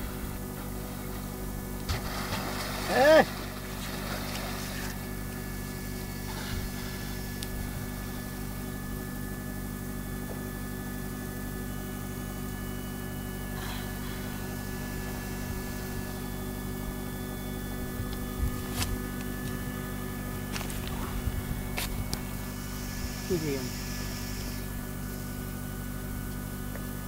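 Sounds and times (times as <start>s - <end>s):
boat engine idling: 0.0s - 27.0s.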